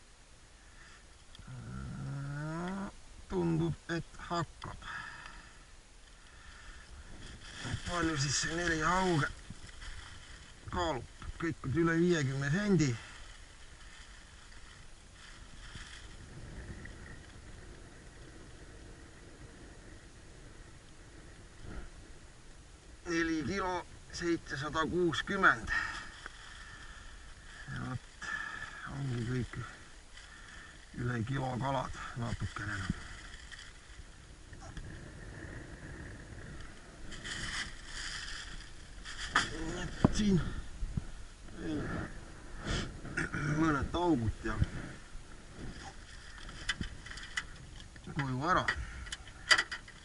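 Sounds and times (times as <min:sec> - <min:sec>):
rustling: 0:05.1 - 0:18.6, 0:23.1 - 0:50.0
wind rumble on microphone: 0:06.8 - 0:25.9, 0:30.8 - 0:50.0
plastic bag rustling: 0:06.9 - 0:11.4, 0:12.7 - 0:16.4, 0:37.0 - 0:40.4.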